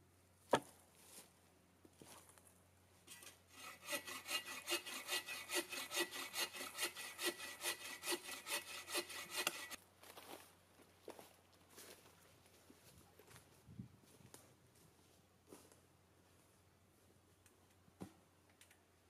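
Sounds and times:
hand saw cutting wood: 3.1s - 9.8s.

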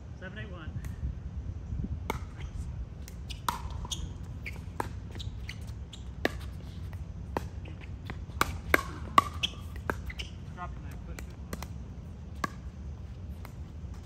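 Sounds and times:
ball bouncing on court: 2.1s - 2.4s, 3.0s - 14.0s
paddles striking ball: 7.2s - 12.8s.

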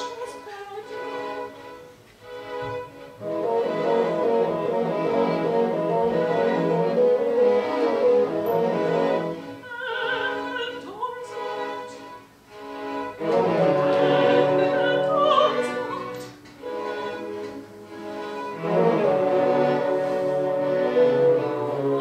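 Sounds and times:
orchestra with strings: 0.0s - 22.0s
soprano singing opera: 9.5s - 12.2s, 13.3s - 16.4s, 21.3s - 22.0s.

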